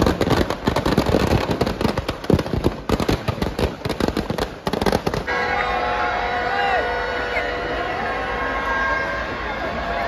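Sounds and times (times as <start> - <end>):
firecrackers crackling: 0.0 - 5.7.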